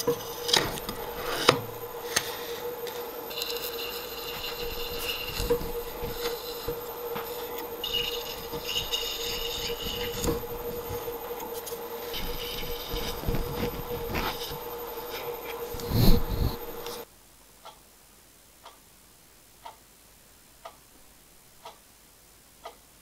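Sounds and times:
high scraping squeal of drilling metal: 0:00.0 - 0:17.0
drill press motor hum: 0:00.0 - 0:17.1.

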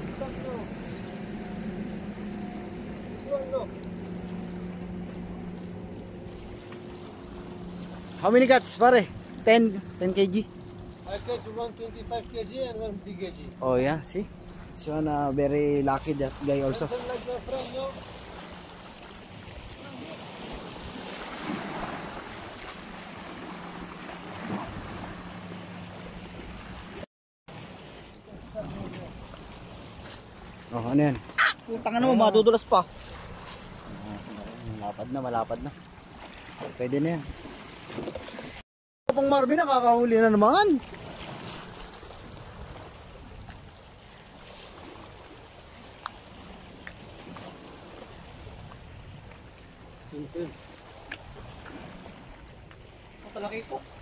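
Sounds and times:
sea water lapping against rocks: 0:15.8 - 0:38.6, 0:40.1 - 0:54.0.

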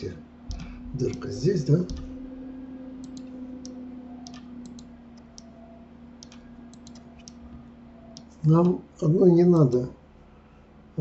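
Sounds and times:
steady low hum: 0:00.0 - 0:11.0
mouse and keyboard clicks: 0:06.2 - 0:07.4.

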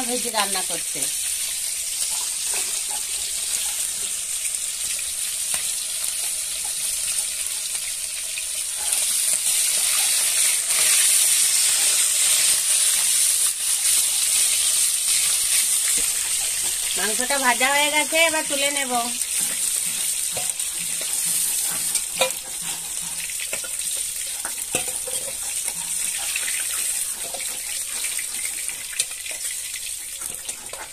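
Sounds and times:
chicken sizzling in hot oil: 0:00.0 - 0:30.9
metal spatula turning food: 0:00.0 - 0:30.9.

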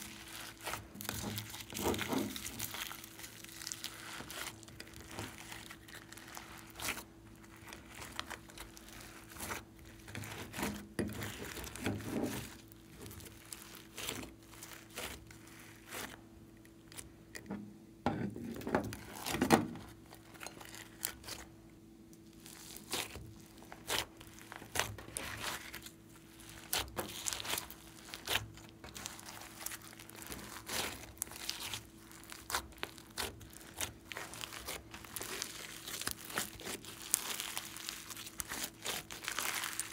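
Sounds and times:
slime squished by hand: 0:00.0 - 0:16.2, 0:22.2 - 0:39.9.

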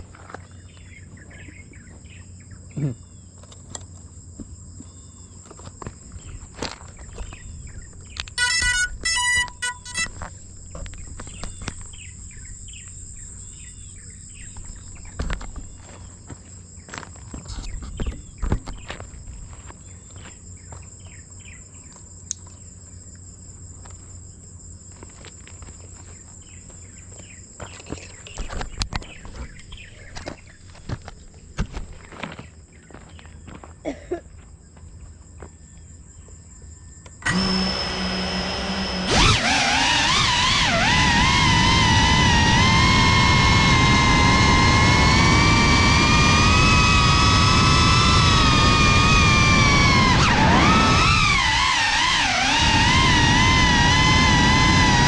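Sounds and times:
insects buzzing: 0:00.0 - 0:55.0
bird chirps: 0:06.2 - 0:16.2.

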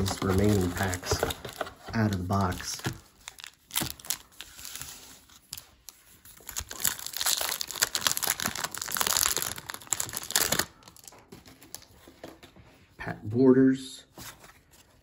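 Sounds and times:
wrapper crinkling: 0:00.0 - 0:11.9.

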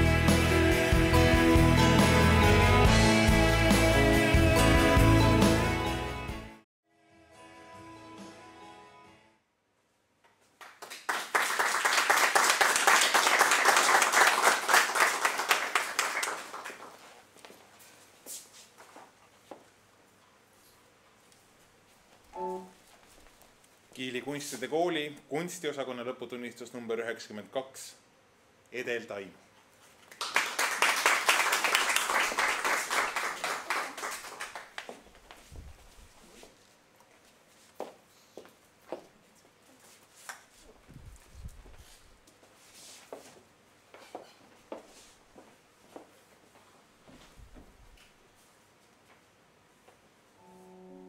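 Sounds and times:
small audience applauding: 0:10.4 - 0:17.3, 0:30.0 - 0:35.3.

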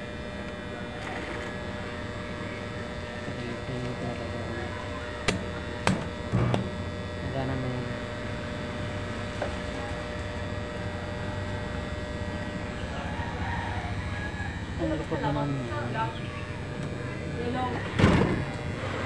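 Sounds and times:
arc welder mains hum: 0:00.0 - 0:19.0
welding electrode arc snaps: 0:05.2 - 0:06.7.

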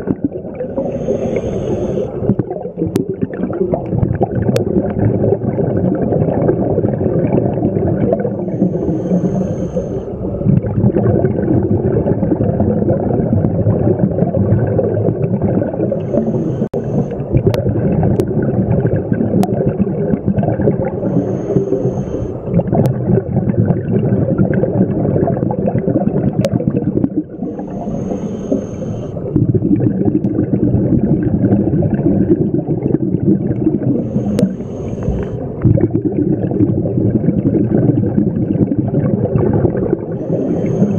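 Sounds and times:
underwater exhaust bubbles: 0:00.0 - 0:40.9
regulator inhalation hiss: 0:00.8 - 0:02.2, 0:08.4 - 0:10.2, 0:16.0 - 0:17.2, 0:21.0 - 0:22.4, 0:27.5 - 0:29.2, 0:34.0 - 0:35.4, 0:40.2 - 0:40.9.

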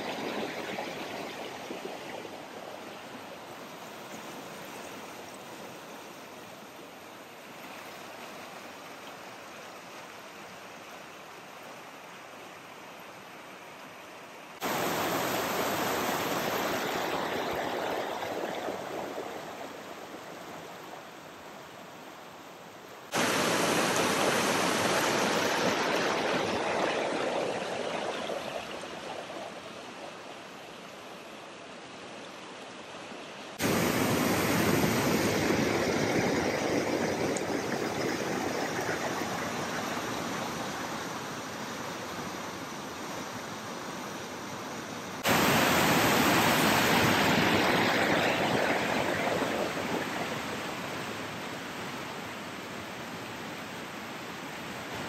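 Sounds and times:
mountain stream and waterfall rushing: 0:14.6 - 0:21.4, 0:23.1 - 0:42.4, 0:45.2 - 0:55.0.

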